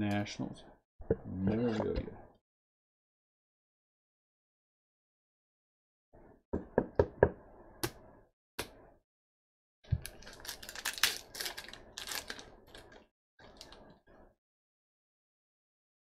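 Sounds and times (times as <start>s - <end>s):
card pack wrapper tearing: 10.1s - 13.0s.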